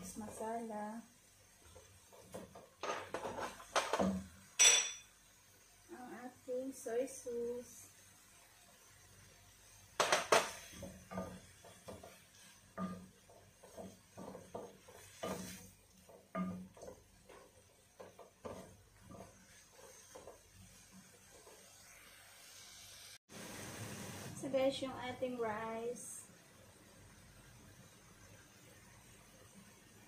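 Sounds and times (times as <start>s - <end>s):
wooden spatula scraping a wok: 1.4s - 4.5s, 9.6s - 23.2s.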